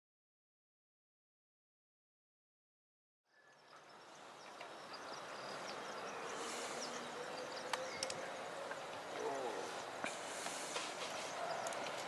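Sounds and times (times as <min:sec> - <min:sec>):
steady background hiss: 0:03.3 - 0:12.0
sharp clicks: 0:07.7 - 0:08.2.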